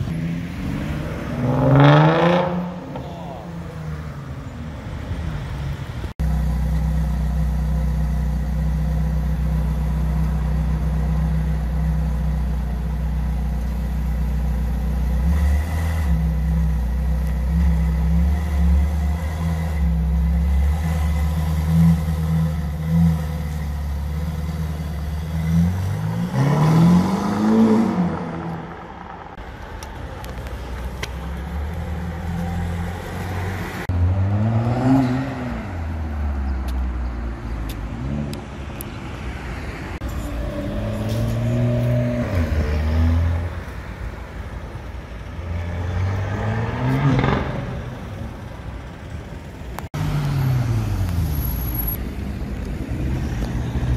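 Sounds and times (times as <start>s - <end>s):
sports car engine idling and revving: 0.0s - 53.9s.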